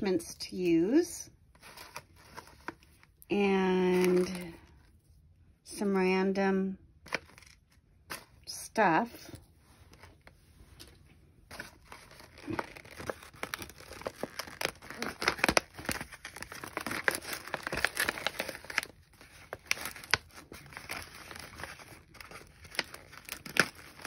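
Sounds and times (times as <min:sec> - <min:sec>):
wrapping paper crinkling: 0:09.7 - 0:24.0.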